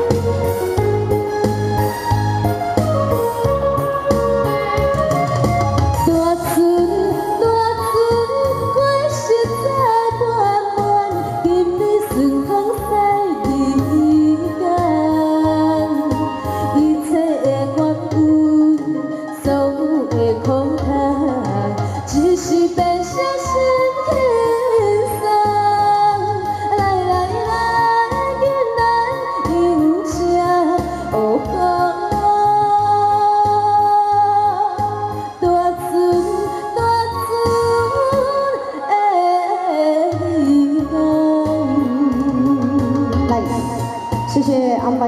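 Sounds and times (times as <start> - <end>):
backing music with bass beat: 0.0 - 6.4
woman singing into microphone: 0.0 - 45.0.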